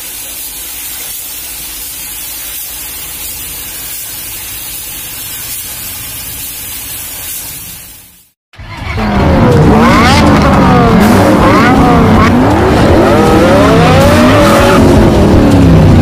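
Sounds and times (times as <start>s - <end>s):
paint spray gun hissing: 0.0s - 8.4s.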